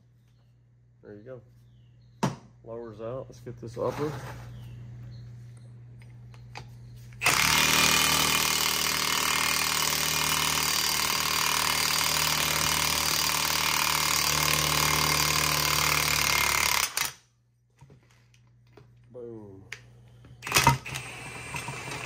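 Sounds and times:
cordless impact wrench hammering: 7.2 - 17.2.

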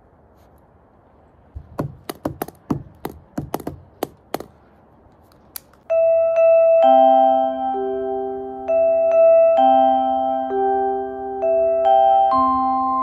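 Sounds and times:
sharp clicks and taps: 1.6 - 5.9.

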